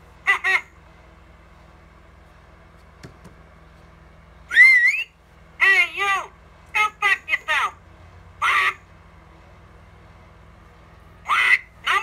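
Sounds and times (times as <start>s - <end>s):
high-pitched toy voice: 0.2s - 0.8s, 8.4s - 8.8s, 11.2s - 12.0s
wavering parrot squawk: 4.5s - 5.1s, 11.2s - 12.0s.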